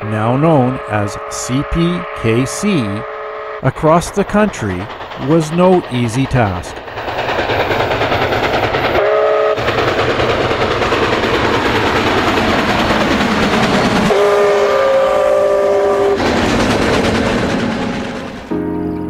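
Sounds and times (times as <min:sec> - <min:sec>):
steam locomotive whistle: 0:00.0 - 0:03.7, 0:09.0 - 0:09.7, 0:14.1 - 0:16.3
train running past: 0:00.0 - 0:19.0.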